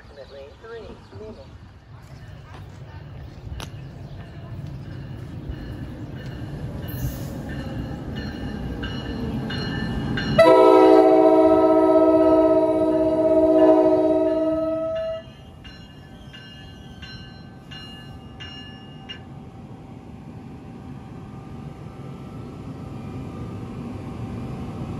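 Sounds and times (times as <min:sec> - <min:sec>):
train rumble: 0:00.0 - 0:24.9
crossing signal bell: 0:04.2 - 0:11.6, 0:12.2 - 0:19.3
locomotive horn blast: 0:10.4 - 0:15.3.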